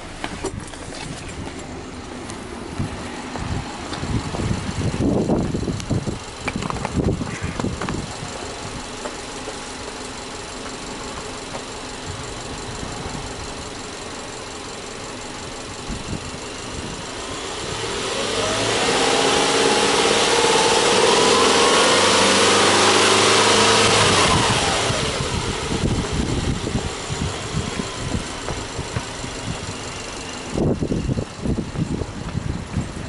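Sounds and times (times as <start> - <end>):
car engine idling and revving: 0.0 - 33.0.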